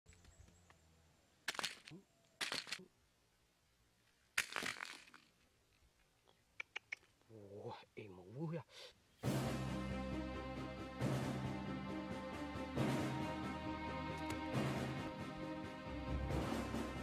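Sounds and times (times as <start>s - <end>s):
basket rustling and rattling: 1.5s - 2.8s, 4.4s - 5.4s.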